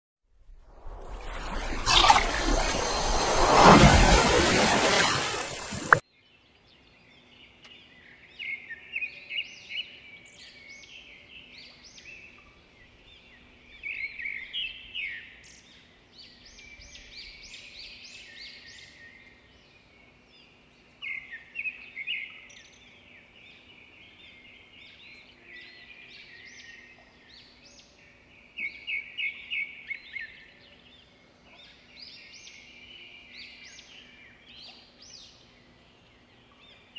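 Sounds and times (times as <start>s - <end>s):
loud rushing sound: 0.5s - 6.0s.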